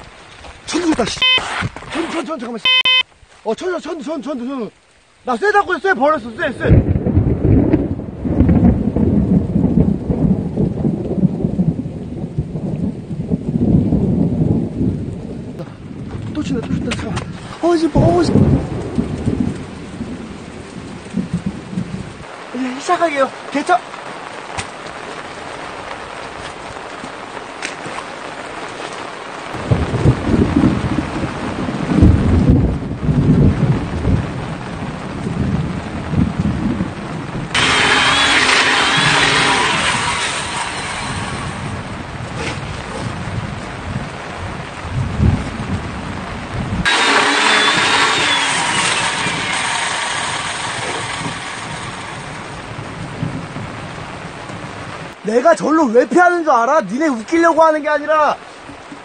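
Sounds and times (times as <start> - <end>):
rain falling: 0.0 - 59.0
thunder rumbling: 6.1 - 27.4, 29.4 - 55.2.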